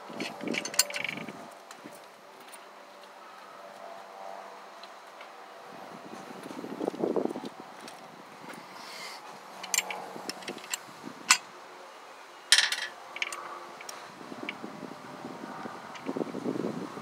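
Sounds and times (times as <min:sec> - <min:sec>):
metallic clicks and clinks: 0:00.1 - 0:01.4, 0:09.6 - 0:11.4, 0:12.5 - 0:14.6.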